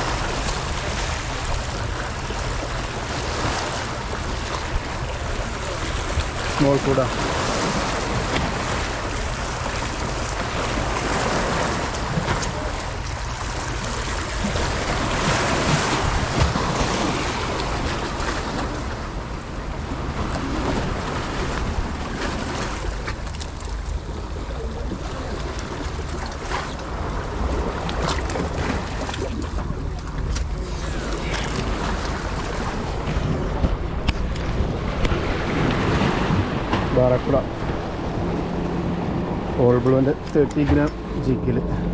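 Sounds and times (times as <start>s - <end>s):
surf washing on shore: 0.0s - 41.9s
wind buffeting microphone: 26.8s - 41.9s.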